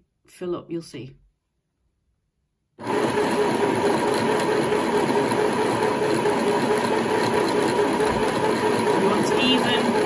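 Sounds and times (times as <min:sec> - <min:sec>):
sewing machine motor whirring: 0:02.8 - 0:10.0.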